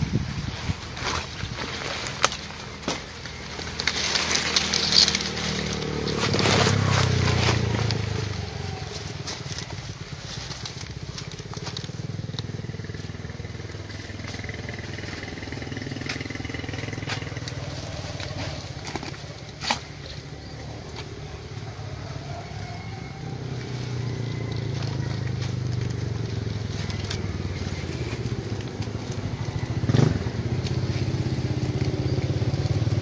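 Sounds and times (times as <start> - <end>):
small engine droning: 0.0 - 33.0
wet net rustling and crackling: 0.1 - 15.4.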